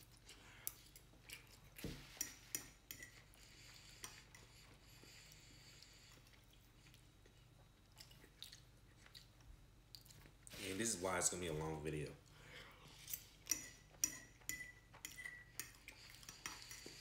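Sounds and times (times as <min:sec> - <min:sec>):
fork clinking on a plate: 0:13.4 - 0:17.0.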